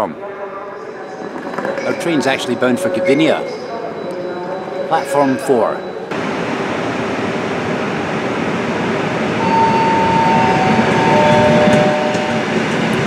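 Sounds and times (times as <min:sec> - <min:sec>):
train wheels and motors rumbling: 0:06.1 - 0:13.0
train motor whining tones: 0:09.4 - 0:13.0.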